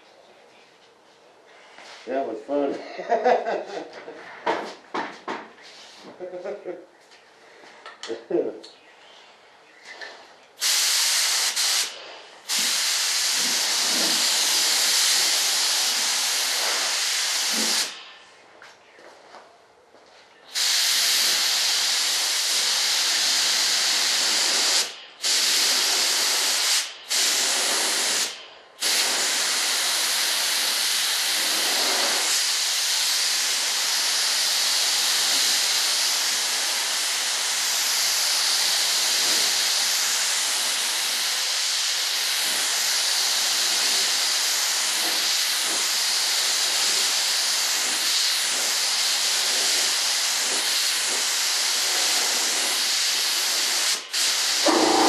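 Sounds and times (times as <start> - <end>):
spray gun hissing: 10.6 - 18.0, 20.5 - 55.0.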